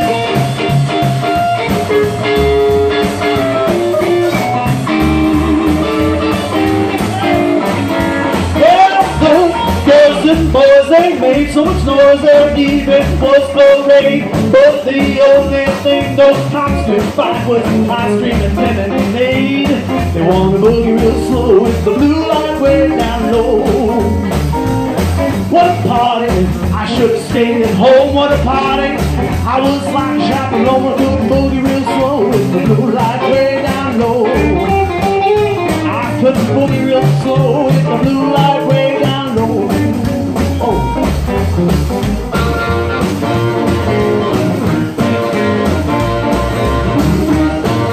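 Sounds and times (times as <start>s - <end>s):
harmonica bending notes: 0.0s - 16.7s, 30.0s - 47.9s
blues band playing: 0.0s - 47.9s.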